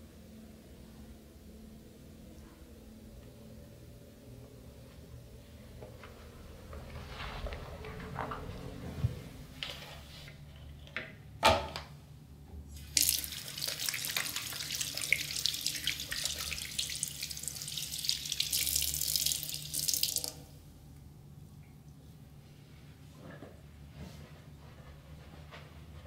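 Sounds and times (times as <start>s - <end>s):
water running and splashing: 12.8s - 20.4s.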